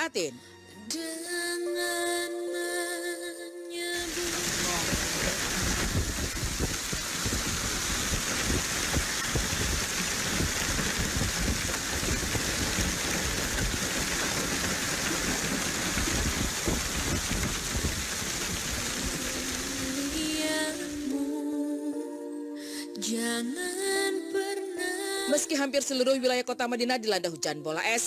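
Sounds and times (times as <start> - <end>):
hail and rain pelting: 4.0 - 21.1.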